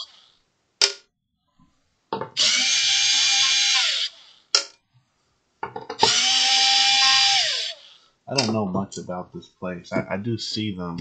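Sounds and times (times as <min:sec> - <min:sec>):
cordless drill whining: 0:02.4 - 0:04.5, 0:06.0 - 0:08.0.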